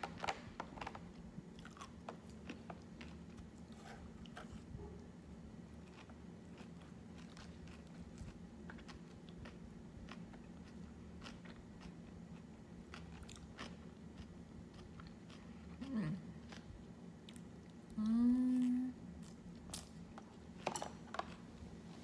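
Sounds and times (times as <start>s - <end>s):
person chewing crunchy food: 0.0s - 4.7s, 5.6s - 17.6s
person humming: 18.0s - 19.0s.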